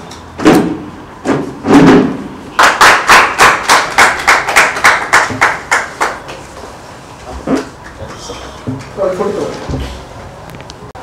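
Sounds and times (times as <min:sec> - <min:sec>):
hands clapping: 0:02.5 - 0:06.4.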